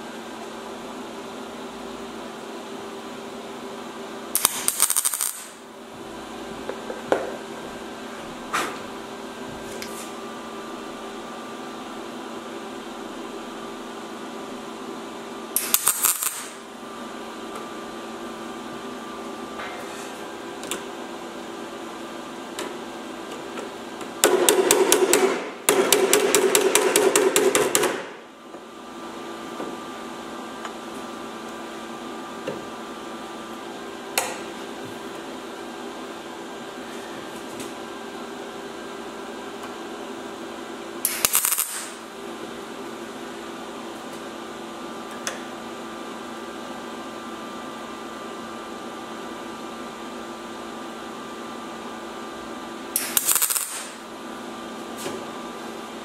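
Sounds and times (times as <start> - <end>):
steady welder hum: 0.0 - 56.0
welding arc crackle: 4.4 - 5.7, 15.6 - 16.7, 41.0 - 42.1, 53.0 - 54.1.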